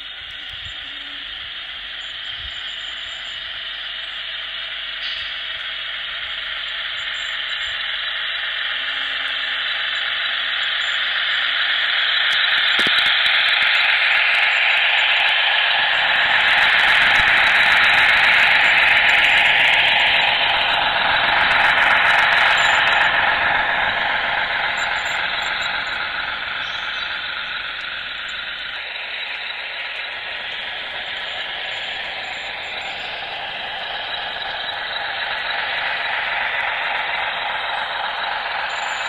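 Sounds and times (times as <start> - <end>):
model locomotive hissing: 0.0 - 39.0
sharp clicks: 12.2 - 13.9.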